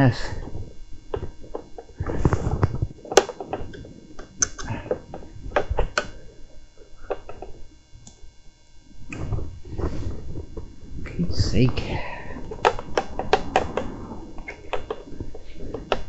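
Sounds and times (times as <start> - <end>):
rustling: 0.2 - 16.0
sharp clicks and knocks: 12.4 - 16.0.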